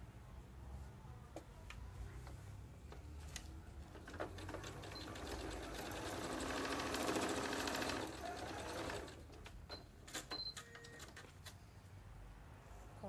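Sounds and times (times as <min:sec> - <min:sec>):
sewing machine stitching: 0:04.0 - 0:09.3.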